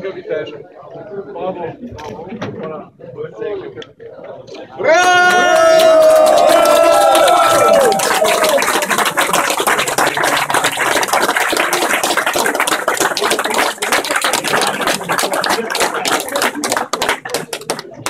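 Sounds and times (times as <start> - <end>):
crowd applauding: 4.9 - 18.0.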